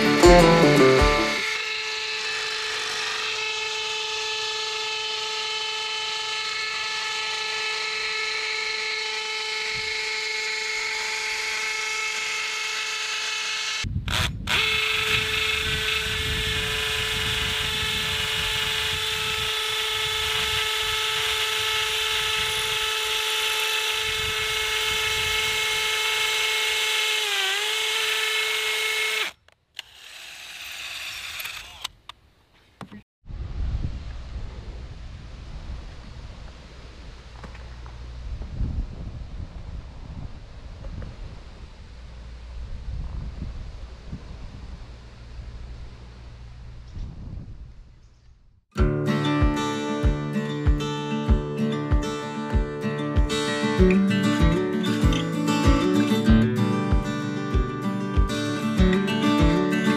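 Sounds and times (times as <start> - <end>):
cordless drill whining: 0.0 - 32.1.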